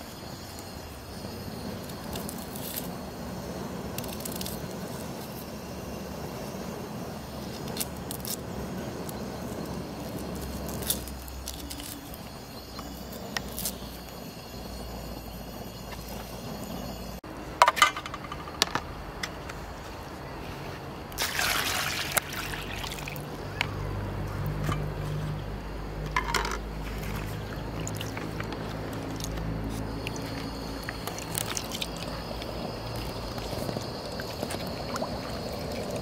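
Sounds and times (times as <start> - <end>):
water pouring: 21.2 - 23.3, 26.4 - 29.3, 30.0 - 36.0.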